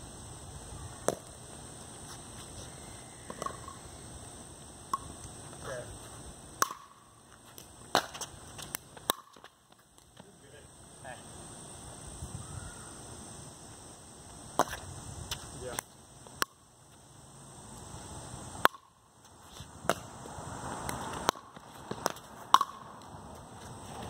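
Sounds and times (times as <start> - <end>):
paddle hits and ball bounces: 6.6 - 7.0, 21.2 - 22.9.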